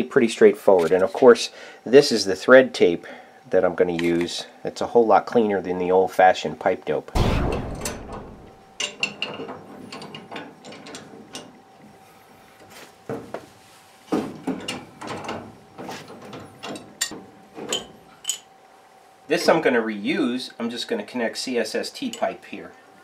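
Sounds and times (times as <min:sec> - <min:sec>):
faint steady hum: 0:00.0 - 0:23.0
heavy thud: 0:07.2 - 0:08.6.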